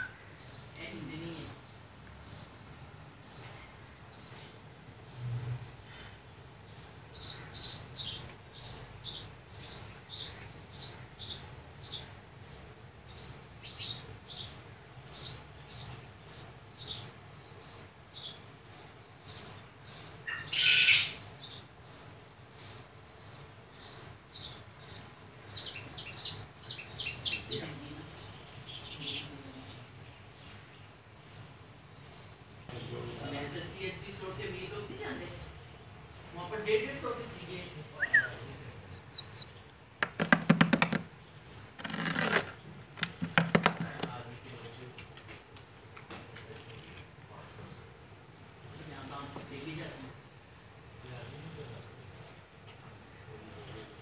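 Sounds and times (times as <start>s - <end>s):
bird chirping: 0.0s - 2.6s, 3.2s - 54.0s
long bird call: 6.7s - 27.5s, 38.0s - 44.1s.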